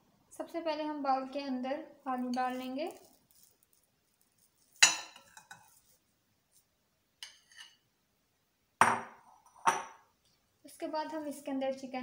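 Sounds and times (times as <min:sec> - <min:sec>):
spoon clinking on bowl: 0:04.8 - 0:05.8.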